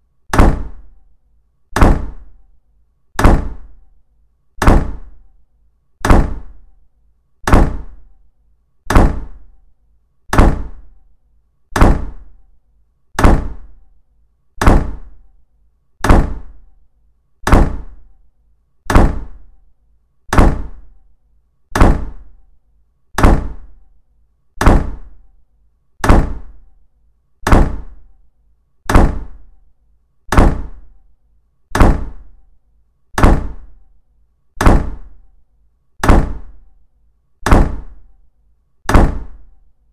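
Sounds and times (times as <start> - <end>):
deep thuds: 0.3 - 0.8, 3.2 - 3.7, 4.6 - 5.0, 6.0 - 6.5, 7.4 - 8.0, 8.9 - 9.4, 10.3 - 10.8, 11.8 - 12.2, 13.2 - 13.6, 14.6 - 15.1, 16.0 - 16.5, 17.4 - 18.0, 23.2 - 23.6, 24.6 - 25.1, 27.4 - 27.8, 28.9 - 29.3, 30.3 - 30.8, 31.7 - 32.2, 33.2 - 33.6, 34.6 - 35.0, 37.4 - 37.9.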